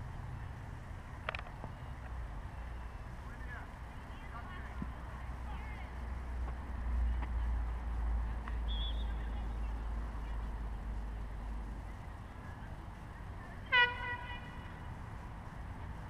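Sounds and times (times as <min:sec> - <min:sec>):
loud short honk: 0:13.7 - 0:14.6.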